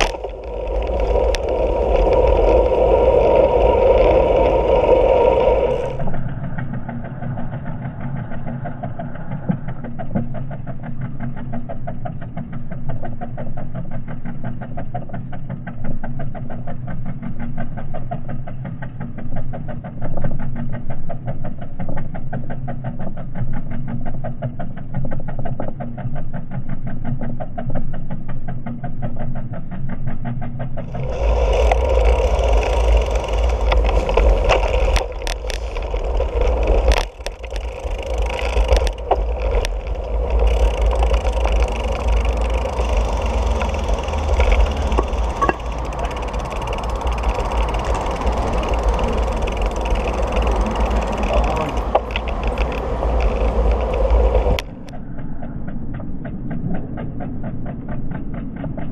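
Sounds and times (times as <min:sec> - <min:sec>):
wind buffeting microphone: 0:00.0 - 0:09.8, 0:30.8 - 0:55.0
bike rattling over paving: 0:00.0 - 0:27.2, 0:30.8 - 0:55.0
muffled pulsing engine drone: 0:00.0 - 0:58.9.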